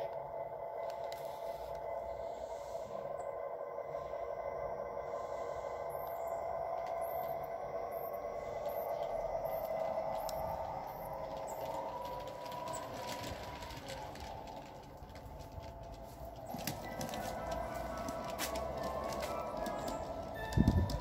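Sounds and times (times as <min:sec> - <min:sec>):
wheels clicking over rail joints: 0:06.7 - 0:21.0.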